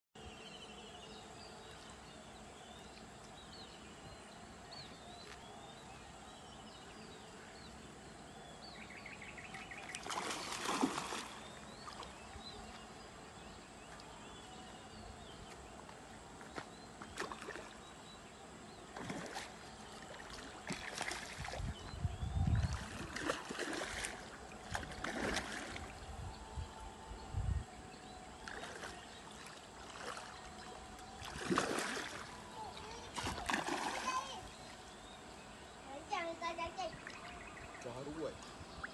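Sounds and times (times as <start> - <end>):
water splashing and swirling: 9.4 - 13.2, 15.9 - 26.3, 28.2 - 35.3, 36.4 - 37.5
small birds chirping: 28.0 - 38.9.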